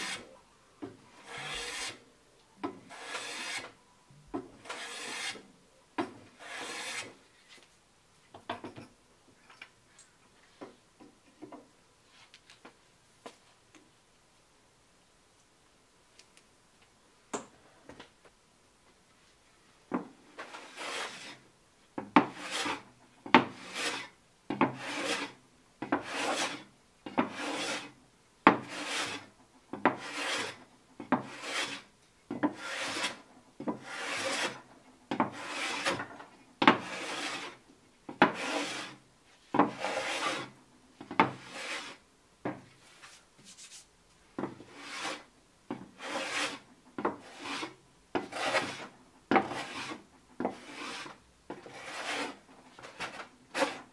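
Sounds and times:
hand plane cutting wood: 1.1s - 2.0s, 2.9s - 3.7s, 4.6s - 5.4s, 6.4s - 7.2s, 20.5s - 21.4s, 22.3s - 22.8s, 23.5s - 24.1s, 24.7s - 25.4s, 26.0s - 26.6s, 27.3s - 27.9s, 28.6s - 29.3s, 29.9s - 30.6s, 31.2s - 31.9s, 32.5s - 33.2s, 33.8s - 34.6s, 35.3s - 36.1s, 36.8s - 37.6s, 38.2s - 39.0s, 39.7s - 40.5s, 41.4s - 42.0s, 44.7s - 45.2s, 46.0s - 46.6s, 47.2s - 53.9s.

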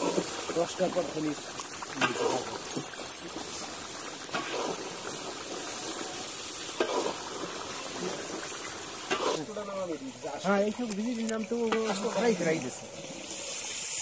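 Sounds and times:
masala sizzling in hot oil: 0.0s - 14.0s
metal ladle scraping pan: 4.3s - 5.0s, 6.6s - 9.6s.

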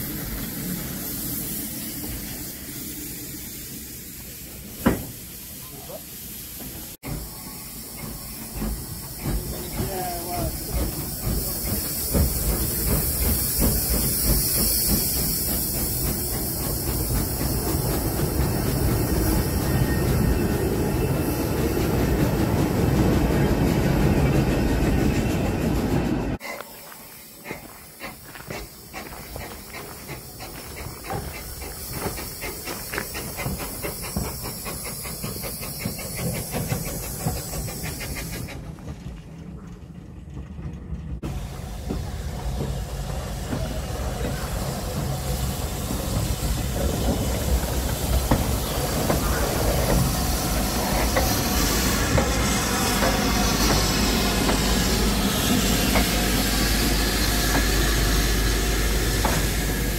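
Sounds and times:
steam locomotive hissing: 0.0s - 39.0s, 41.2s - 59.9s
train wheels rumbling: 0.0s - 59.9s.

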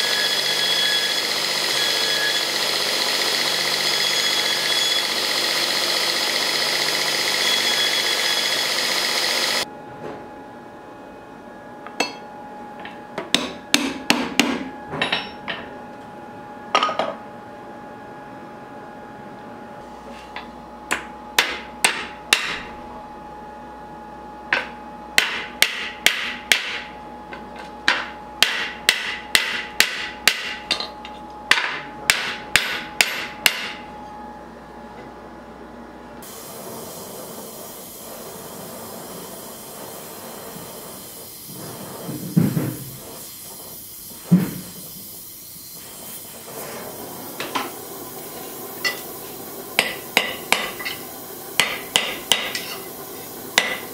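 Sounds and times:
hammer striking steel: 12.0s - 12.3s, 13.2s - 15.6s, 20.9s - 22.7s, 24.5s - 26.9s, 27.9s - 33.8s, 49.8s - 53.9s
steady hiss: 36.2s - 53.9s.

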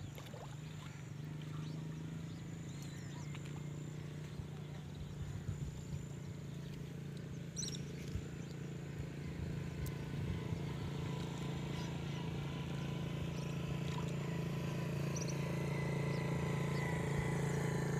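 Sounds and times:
low engine hum: 0.0s - 17.9s.

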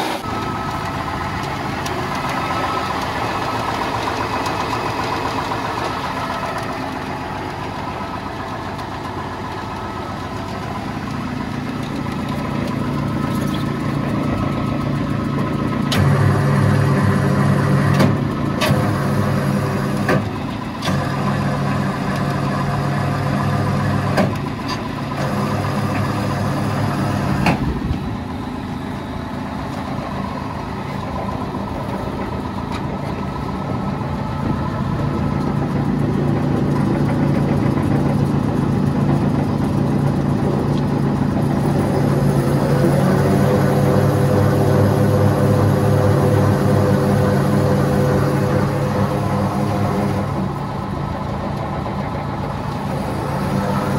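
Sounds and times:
wood chipper knocks and clatters: 0.0s - 28.1s
tractor engine running: 0.0s - 53.9s.

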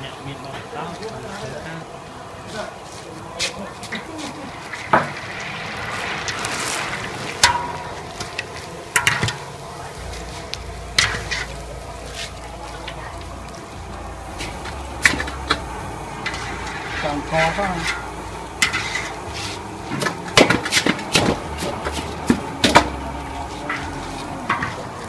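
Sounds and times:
noodles sizzling in hot oil: 0.0s - 25.0s
strainer scraping and knocking on wok: 4.7s - 13.7s, 14.3s - 25.0s.

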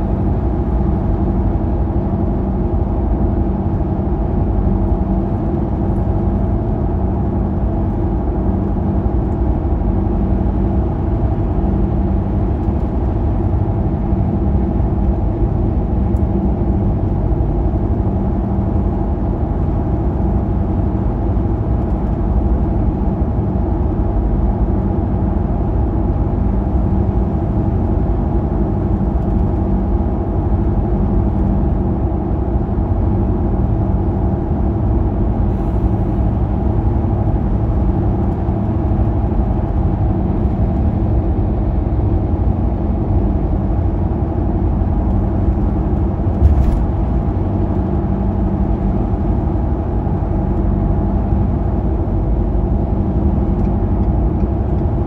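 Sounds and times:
car tyre and engine drone: 25.6s - 55.0s.

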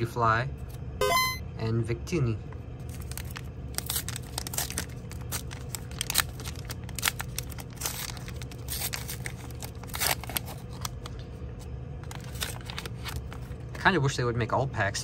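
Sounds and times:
paper wrapper ripping and crinkling: 2.8s - 11.2s, 12.0s - 13.9s.

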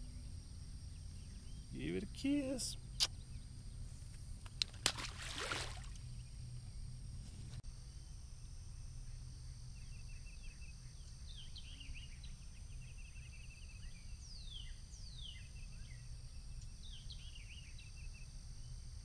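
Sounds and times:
birds chirping: 0.9s - 4.0s.

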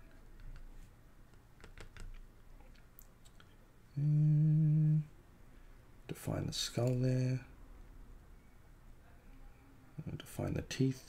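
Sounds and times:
pen tapping and scratching paper: 0.2s - 2.3s
man humming low note: 3.9s - 5.1s.

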